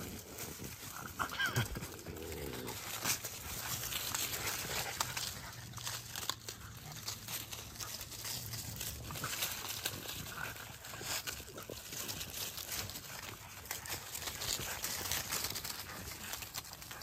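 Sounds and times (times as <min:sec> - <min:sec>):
dry leaves rustling: 0:00.0 - 0:17.0.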